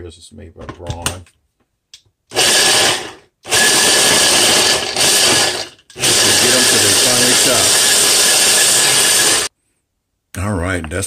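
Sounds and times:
hand blender chopping nuts: 0:02.3 - 0:09.5.

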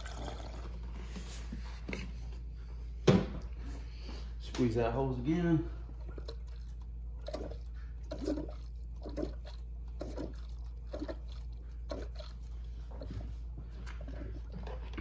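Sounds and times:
coolant gurgling and bubbling: 0:00.0 - 0:01.3, 0:05.4 - 0:15.0.

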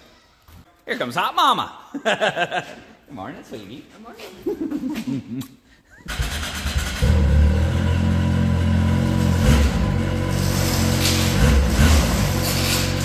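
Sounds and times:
garage door rattling: 0:09.3 - 0:13.0.

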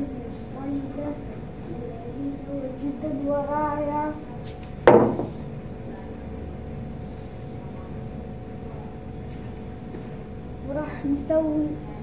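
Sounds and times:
faint steady background hum: 0:00.0 - 0:12.0
plastic bottle knocking on table: 0:04.9 - 0:05.4.

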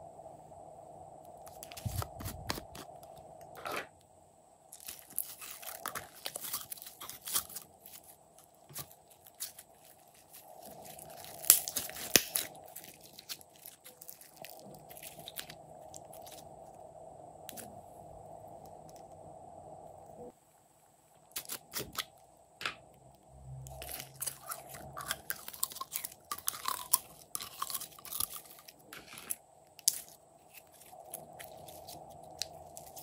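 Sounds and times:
slime crackling and popping: 0:04.7 - 0:16.4, 0:23.7 - 0:33.0.

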